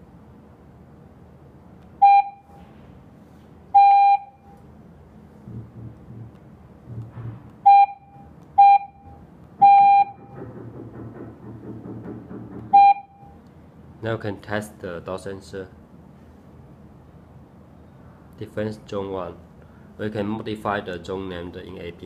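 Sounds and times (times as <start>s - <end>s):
keypad beeps: 2.0s - 2.5s, 3.8s - 4.4s, 7.6s - 10.4s, 12.7s - 13.4s.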